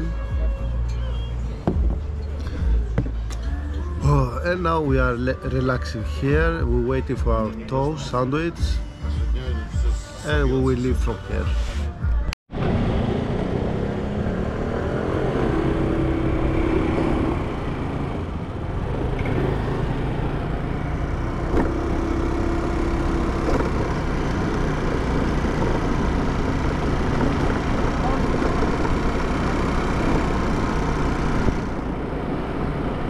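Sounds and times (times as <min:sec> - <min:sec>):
scooter engine running: 0:17.3 - 0:33.0.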